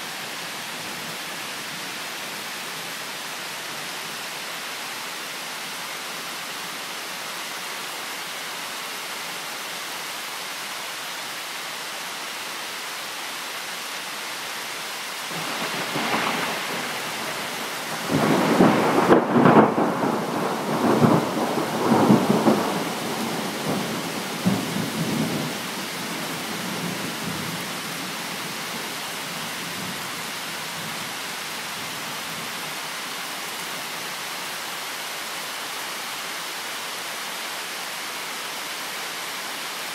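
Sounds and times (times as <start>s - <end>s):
steady rain falling: 0.0s - 39.9s
thunder rolling: 15.4s - 24.6s.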